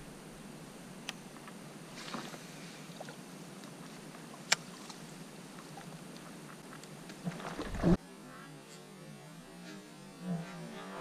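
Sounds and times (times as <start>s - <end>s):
open-air background hiss: 0.0s - 11.0s.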